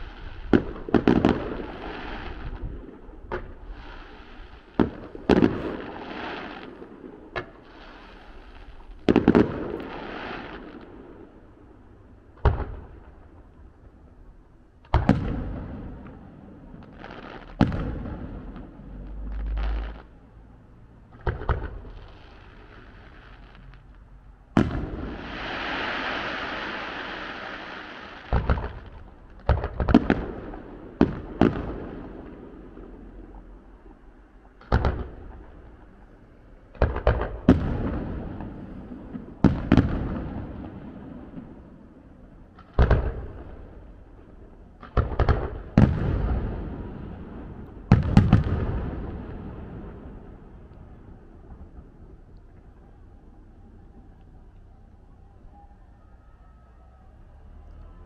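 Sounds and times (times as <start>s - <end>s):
distant fireworks bangs: 0.0s - 11.5s, 12.3s - 13.5s, 14.9s - 20.2s, 21.1s - 23.9s, 24.5s - 54.5s
firework hiss: 1.3s - 2.6s, 3.6s - 4.8s, 5.4s - 6.8s, 7.6s - 9.0s, 9.7s - 10.8s, 24.9s - 28.8s.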